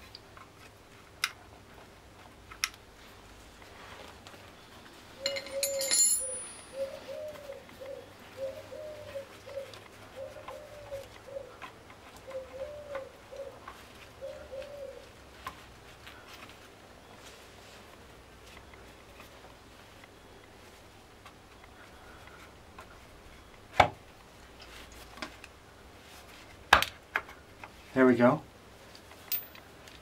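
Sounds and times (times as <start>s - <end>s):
pigeon cooing: 5.2s - 15.3s.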